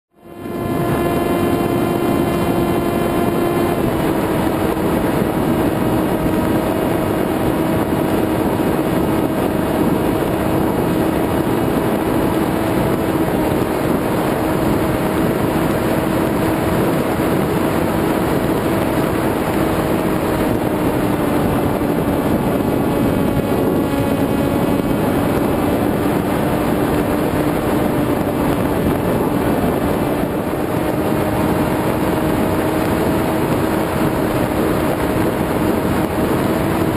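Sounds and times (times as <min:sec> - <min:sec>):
electric motor and propeller whine: 0:00.1 - 0:36.9
wind rush on microphone: 0:00.1 - 0:36.9.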